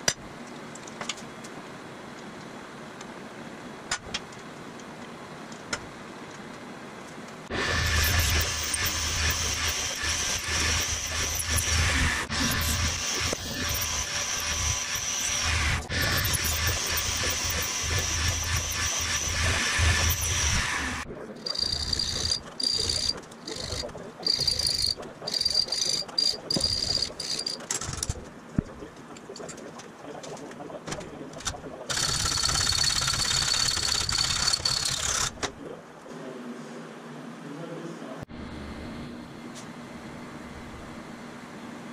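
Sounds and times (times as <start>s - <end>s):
power tool whining: 7.5s - 27.6s.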